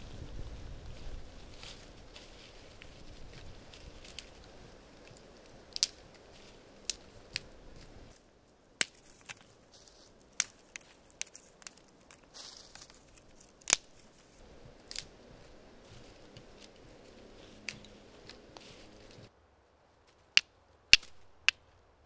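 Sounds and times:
dry twigs snapping: 0.9s - 8.2s, 8.8s - 19.3s, 20.3s - 21.6s
scraping rustle: 9.0s - 19.3s.

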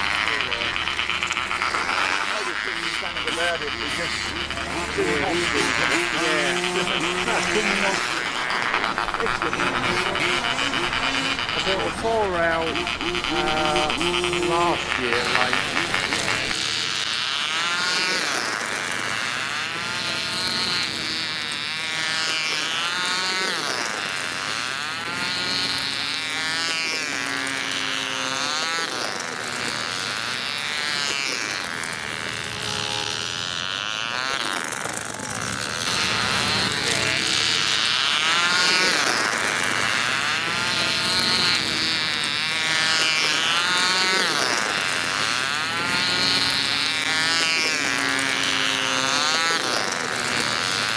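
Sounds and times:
miniature engines buzzing: 0.0s - 50.9s.

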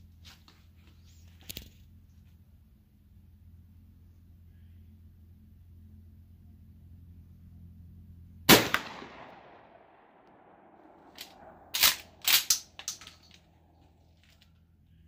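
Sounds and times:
shotgun shot: 8.5s - 12.5s.

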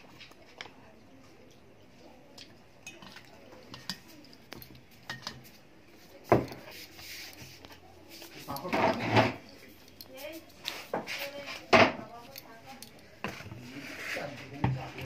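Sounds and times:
metal utensil scraping a bowl: 6.6s - 9.6s.

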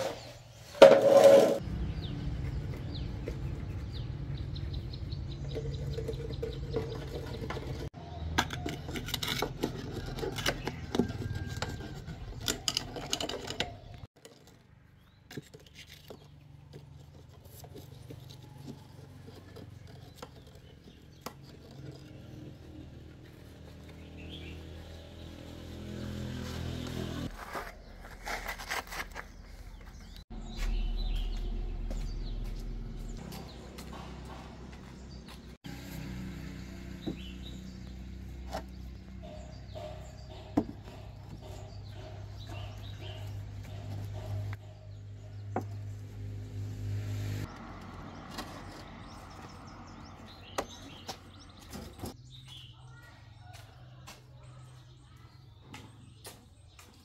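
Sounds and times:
clinks and scraping on steel moulds: 0.0s - 1.6s, 5.3s - 24.4s.

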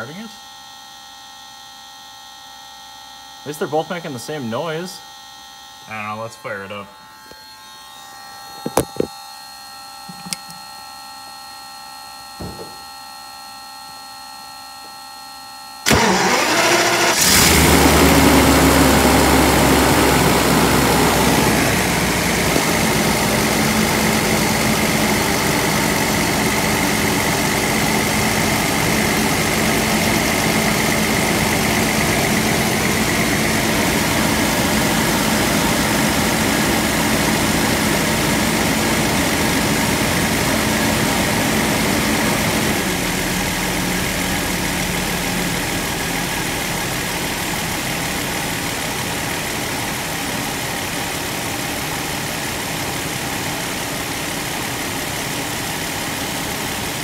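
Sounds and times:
car engine starting and idling: 15.8s - 57.0s.

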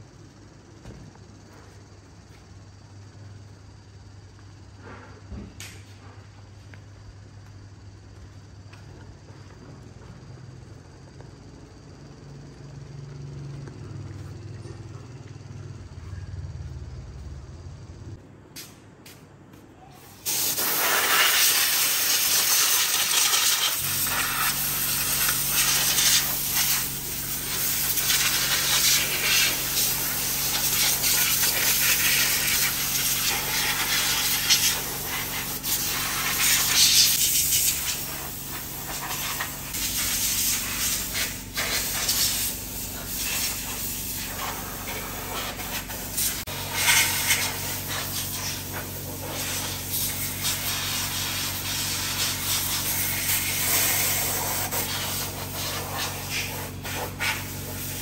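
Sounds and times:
air compressor motor hum: 0.0s - 19.2s, 20.1s - 58.0s
compressed air hissing: 20.0s - 58.0s.

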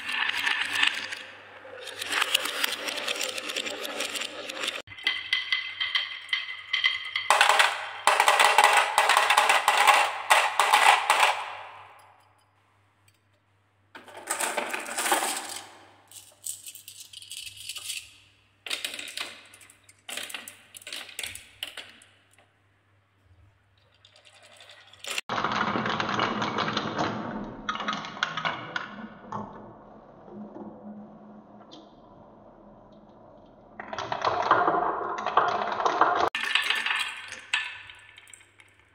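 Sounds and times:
marbles rolling on wooden spiral: 0.0s - 11.9s, 30.4s - 38.8s
marbles clattering down wooden tracks: 0.0s - 12.1s, 14.0s - 18.0s, 24.5s - 29.5s, 33.7s - 38.9s.

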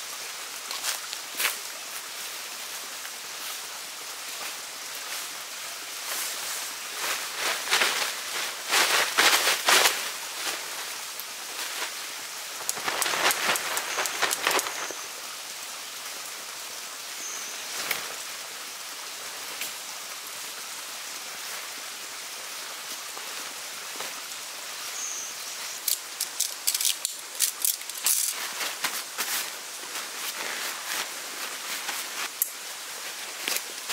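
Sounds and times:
steady background hiss: 0.0s - 33.9s
tent fabric rustling: 6.0s - 15.1s, 26.2s - 33.9s.

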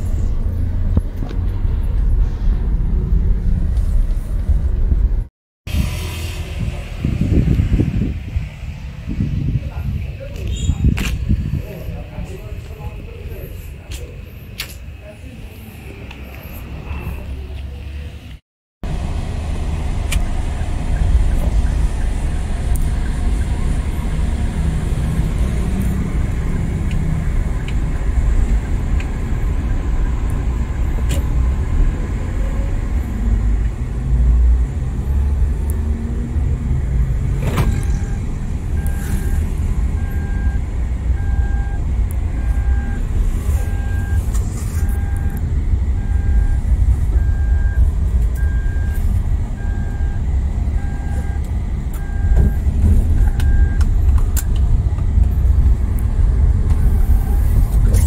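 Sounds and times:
car engine and road rumble: 0.0s - 58.0s
electronic beeps: 37.6s - 41.8s, 42.4s - 53.9s, 56.8s - 57.6s.

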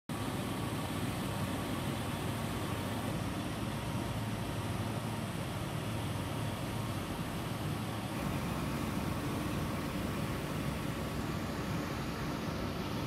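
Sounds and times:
car engine idling: 0.1s - 13.0s.

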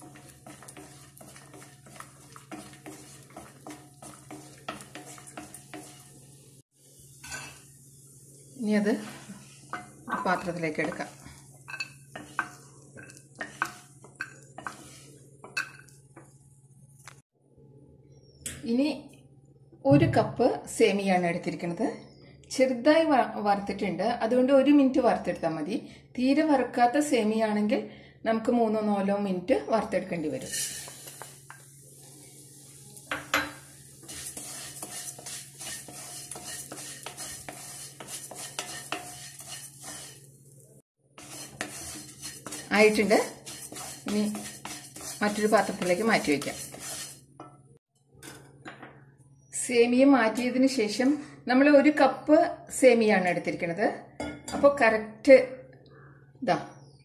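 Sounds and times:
spatula clattering on steel bowl: 0.0s - 6.1s, 11.7s - 15.9s, 33.1s - 40.2s, 41.2s - 47.6s
wooden spatula scraping a pan: 0.0s - 15.9s, 30.2s - 40.4s, 41.1s - 47.6s.

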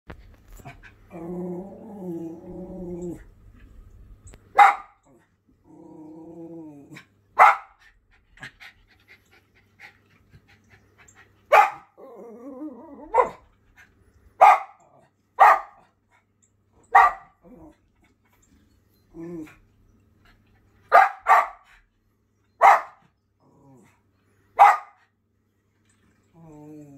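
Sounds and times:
dog growling: 0.6s - 3.4s, 5.0s - 7.1s, 11.9s - 13.4s, 17.4s - 18.0s, 19.1s - 19.6s, 23.4s - 24.0s, 26.3s - 26.9s
dog barking: 4.6s - 5.0s, 7.4s - 7.8s, 11.5s - 11.9s, 13.1s - 13.4s, 14.4s - 14.8s, 15.4s - 15.8s, 16.9s - 17.4s, 20.9s - 21.6s, 22.6s - 23.0s, 24.6s - 25.0s.

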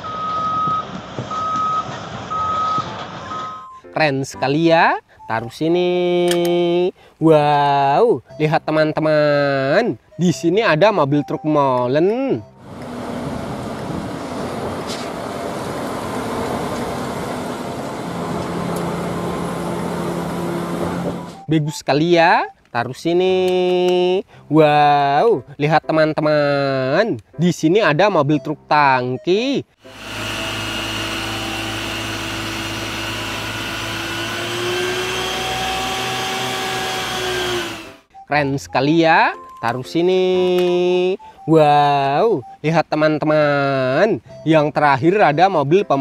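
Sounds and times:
diesel truck engine running: 12.5s - 21.5s, 29.8s - 38.1s
pump machine hum with whine: 29.9s - 38.0s.

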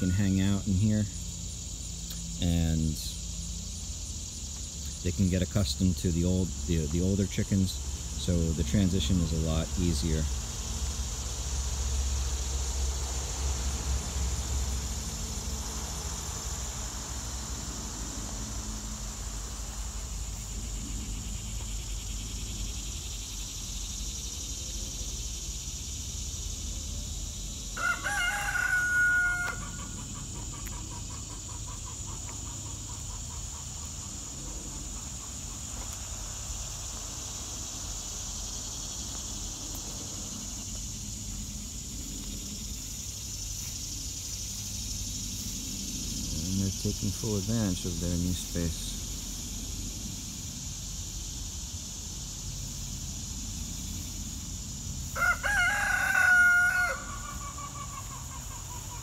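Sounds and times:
insects buzzing: 0.0s - 59.0s
rooster crowing: 27.7s - 30.6s, 55.1s - 58.8s.

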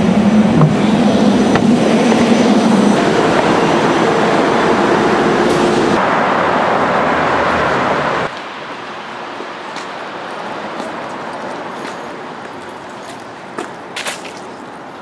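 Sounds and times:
city transit rumble: 0.0s - 15.0s
street noise: 0.0s - 15.0s
faint footsteps: 8.3s - 14.8s.

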